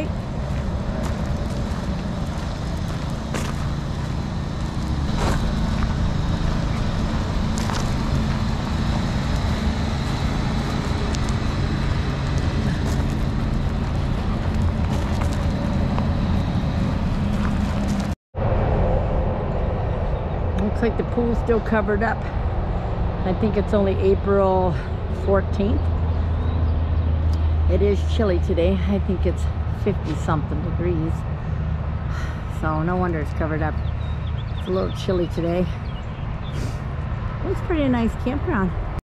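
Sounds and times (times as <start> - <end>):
footsteps on gravel: 0.0 - 18.2
freeway traffic drone: 0.0 - 39.0.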